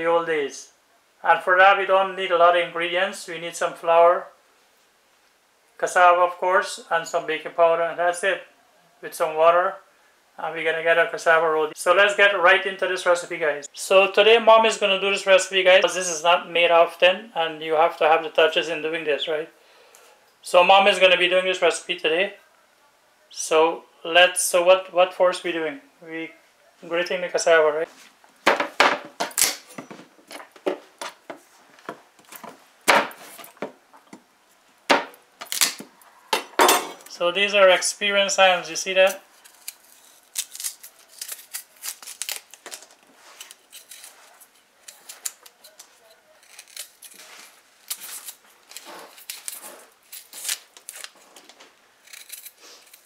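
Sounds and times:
knife scraping: 39.0s - 42.5s, 43.2s - 51.4s, 52.0s - 53.0s.

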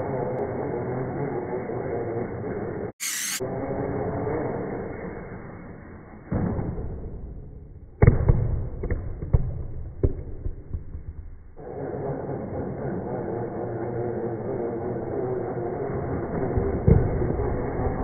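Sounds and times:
slowed toy car motor running: 0.0s - 4.8s, 11.6s - 18.0s.

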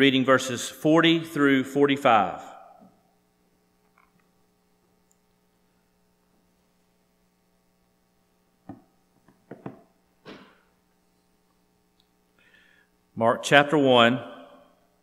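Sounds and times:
low electrical hum: 0.0s - 15.0s
rustles and knocks on wood: 8.7s - 10.6s.

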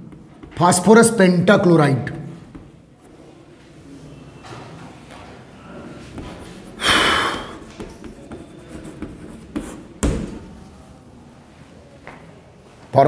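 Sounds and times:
chalk scratching on blackboard: 6.0s - 10.0s.

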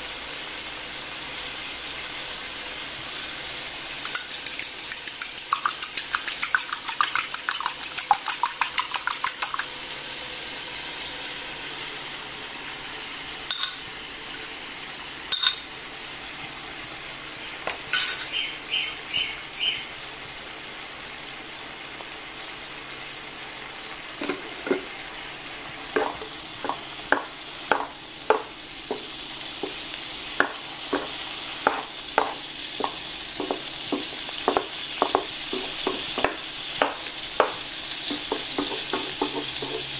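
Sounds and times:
food sizzling in pan: 0.0s - 39.9s
fork whisking egg in bowl: 4.0s - 9.7s
wooden spatula scraping pan: 38.1s - 39.9s.

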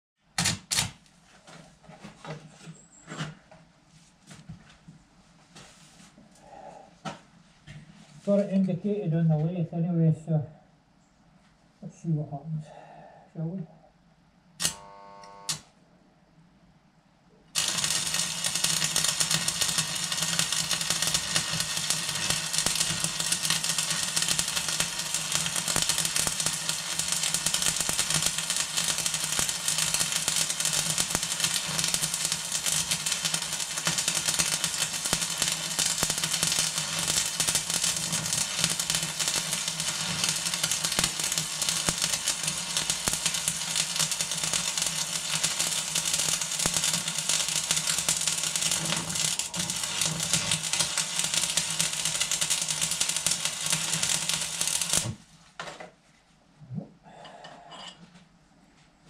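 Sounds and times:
arc welding crackling and sizzling: 14.6s - 15.7s, 17.6s - 55.3s.

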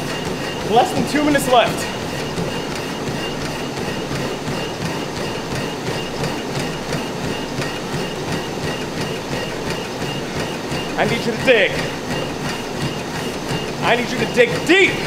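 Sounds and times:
feet pounding on treadmills: 0.0s - 15.0s
treadmills running: 0.0s - 15.0s.

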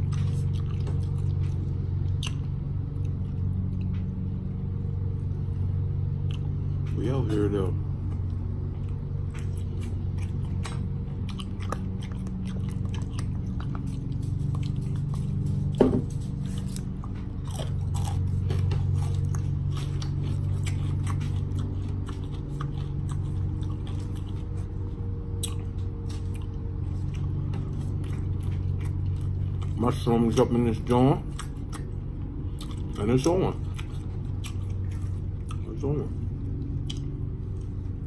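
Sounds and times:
chewing and biting food: 0.0s - 38.0s
steady low hum: 0.0s - 38.0s
wet mouth clicks: 36.8s - 37.1s.

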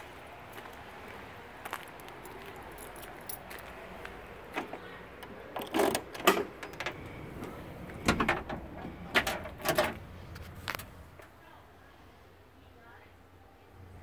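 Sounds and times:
car trunk latch clunking: 7.9s - 10.0s.

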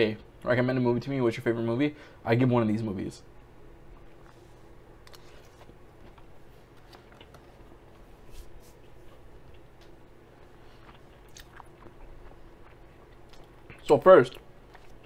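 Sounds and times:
chewing with mouth smacks: 9.0s - 15.0s.

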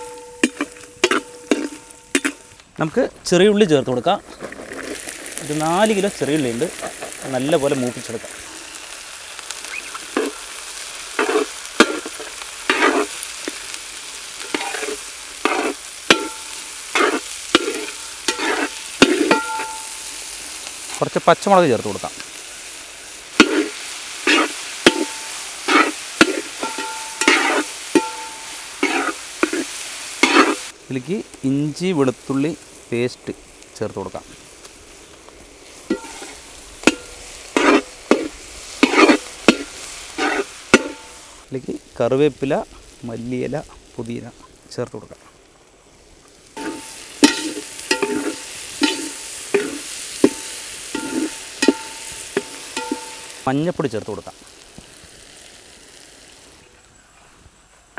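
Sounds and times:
spatula clinking on metal pan: 0.0s - 2.4s, 15.4s - 20.1s, 24.3s - 29.6s, 46.6s - 53.4s
shallots scraping in pan: 0.0s - 45.4s, 46.3s - 56.6s
oil sizzling: 0.0s - 57.1s
pot ringing faintly: 46.6s - 53.4s.

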